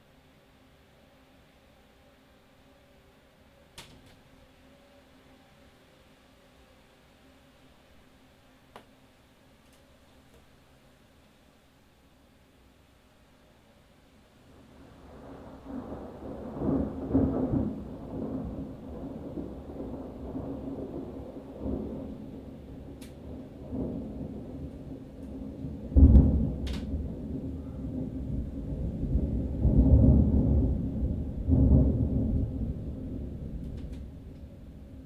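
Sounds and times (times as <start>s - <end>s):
thunder rumbling: 14.8s - 35.0s
loud thunder crack: 15.1s - 35.0s.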